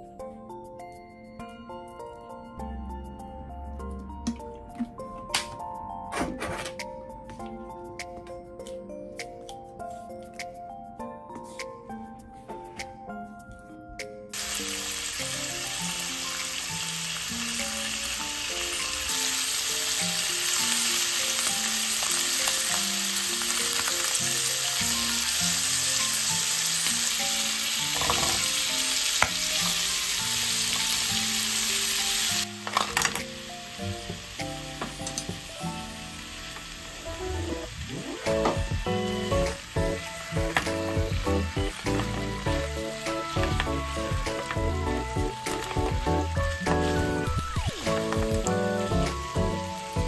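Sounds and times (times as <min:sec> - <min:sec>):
chicken frying in oil: 0:14.4 - 0:33.2, 0:36.3 - 0:50.0.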